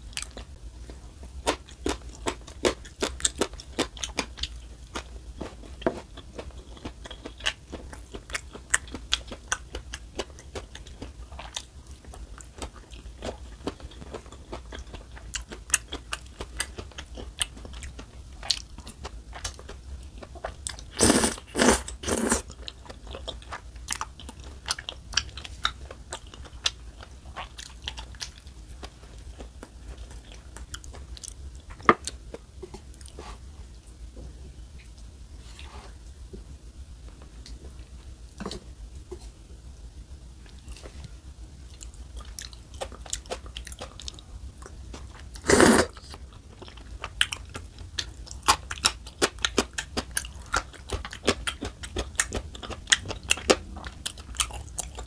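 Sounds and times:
loud noodle slurps: 21.0 - 22.4, 45.4 - 46.0.

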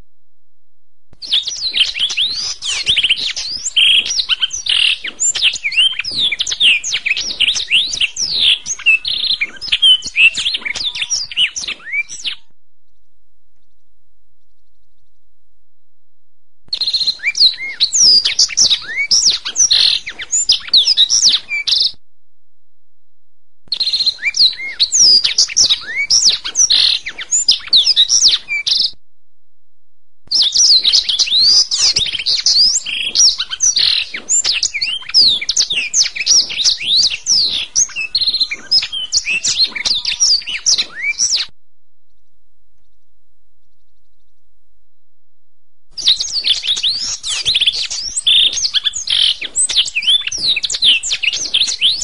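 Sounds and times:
canary singing trills and whistles: 1.2 - 12.5, 16.7 - 22.0, 23.7 - 29.0, 30.3 - 41.5, 46.0 - 52.0.

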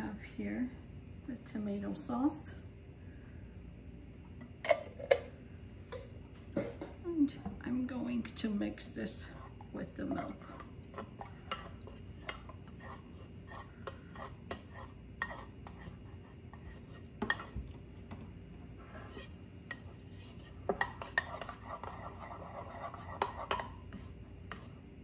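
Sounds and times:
wooden spoon stirring in bowl: 8.0 - 24.8.

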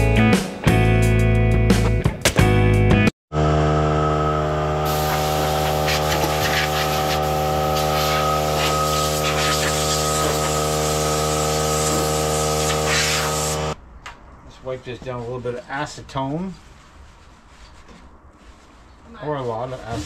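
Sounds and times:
air compressor running: 3.3 - 13.8
compressed air hissing from blow gun: 4.9 - 13.7.

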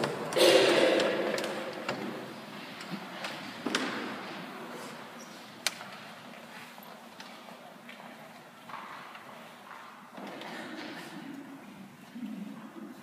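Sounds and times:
voices echoing in church: 0.0 - 13.0
sharp knocks: 0.3 - 2.3.

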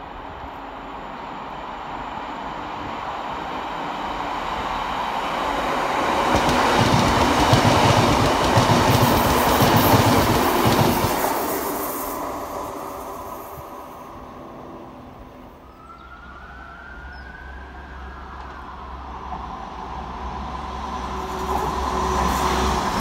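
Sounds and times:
diesel train passing: 0.0 - 23.0
clatter of train wheels: 6.2 - 12.0.

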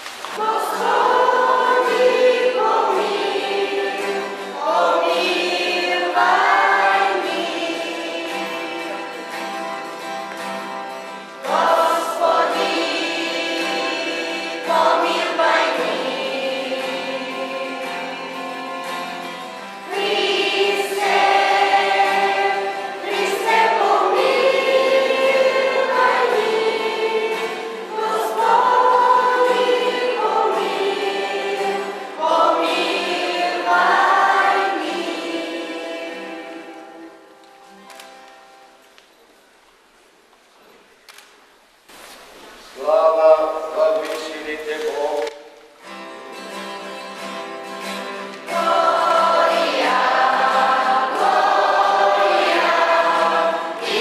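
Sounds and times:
choir singing a hymn: 0.4 - 10.2, 10.9 - 37.4, 48.4 - 54.0.

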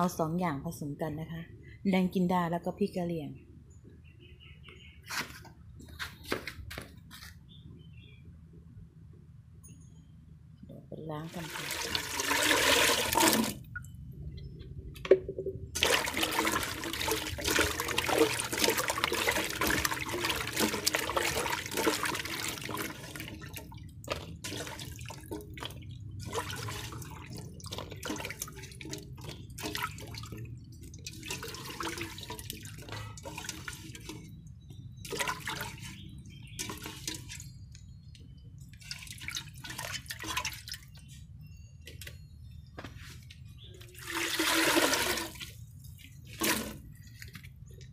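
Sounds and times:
water splashing in metal pot: 11.3 - 13.8, 15.7 - 37.7, 38.7 - 41.0, 44.0 - 47.4
water dripping: 11.3 - 41.1.

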